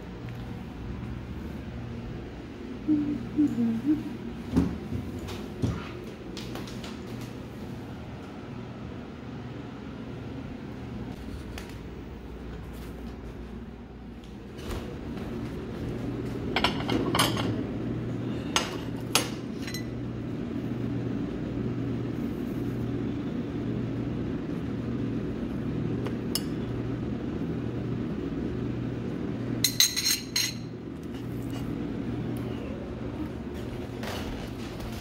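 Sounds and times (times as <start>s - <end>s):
steady low hum: 0.0s - 35.0s
plates and metal tongs clinking: 19.1s - 19.9s, 29.6s - 30.7s.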